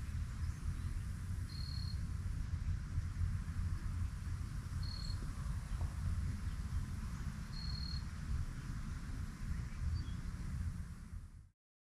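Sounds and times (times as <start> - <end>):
steady low rumble: 0.0 - 11.5
crickets chirring: 0.3 - 2.0, 4.8 - 5.8, 7.5 - 8.1.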